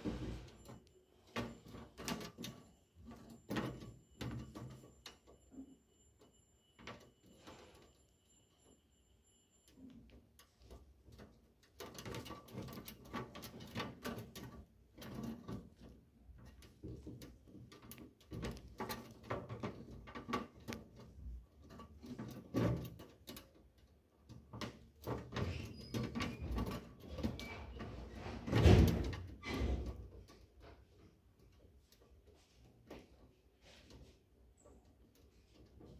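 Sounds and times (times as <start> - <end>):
knocking scraping and rattling: 0.0 - 7.9, 10.4 - 35.9.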